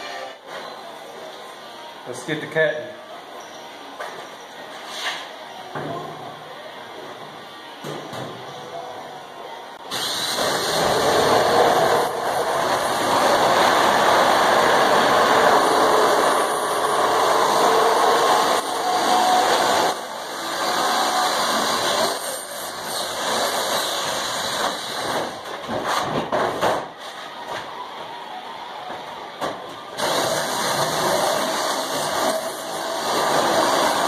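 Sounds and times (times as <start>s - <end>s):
power shear cutting sheet metal: 9.9s - 25.4s, 30.0s - 34.0s.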